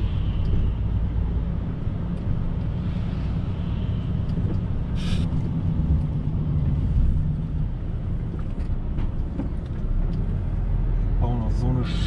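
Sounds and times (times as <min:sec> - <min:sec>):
lorry engine and road rumble: 0:00.0 - 0:12.0
short hiss: 0:05.0 - 0:05.3.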